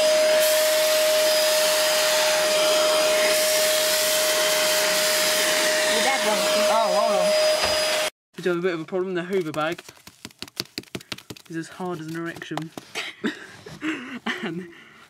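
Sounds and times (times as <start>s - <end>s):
vacuum cleaner running: 0.0s - 8.1s.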